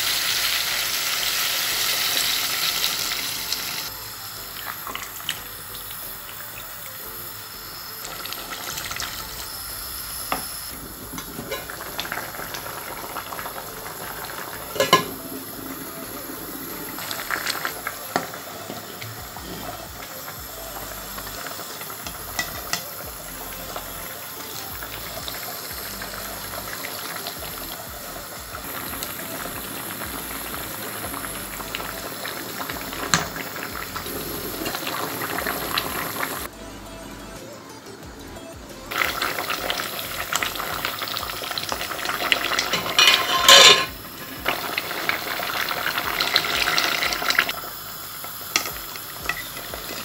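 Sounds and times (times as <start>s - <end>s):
metal clinks against pot: 42.8s - 44.0s.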